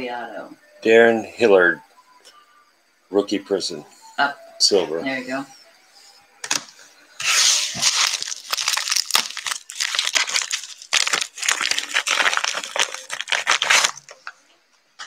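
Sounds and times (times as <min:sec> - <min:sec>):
foil wrapper tearing and crinkling: 0:07.2 - 0:14.4.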